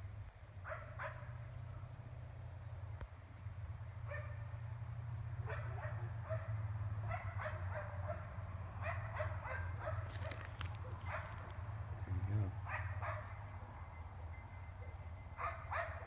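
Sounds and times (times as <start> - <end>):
distant dog barking: 0.6 - 1.5, 4.0 - 4.6, 5.4 - 13.7, 14.6 - 16.0.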